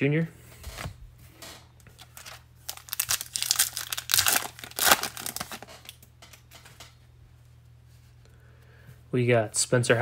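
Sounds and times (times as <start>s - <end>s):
plastic wrapper tearing and crumpling: 2.0s - 6.0s.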